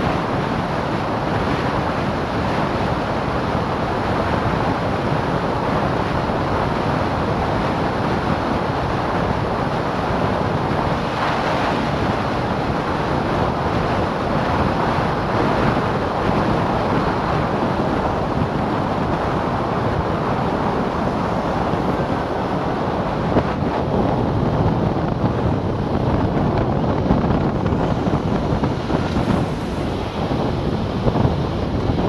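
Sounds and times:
road noise: 0.0 - 32.0
wind rushing over microphone: 0.0 - 32.0.

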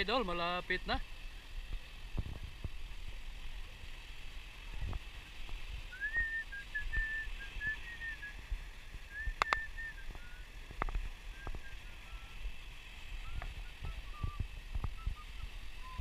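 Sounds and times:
low rumble of wind and surf: 0.0 - 16.0
thin high whistle: 5.9 - 8.5, 9.1 - 10.5, 11.3 - 12.4, 13.2 - 16.0.

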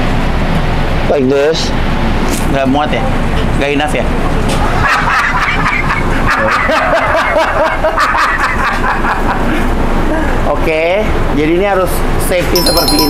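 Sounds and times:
man laughing loudly: 4.7 - 9.6.

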